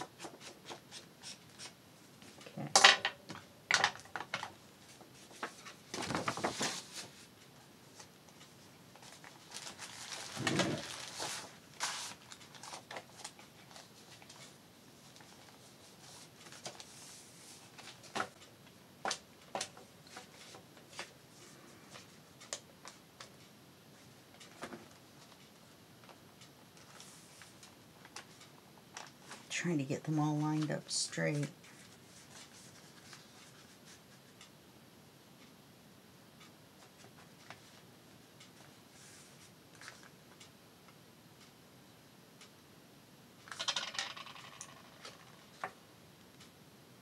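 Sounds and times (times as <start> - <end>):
paper rustling: 5.2 - 7.3, 9.0 - 14.5.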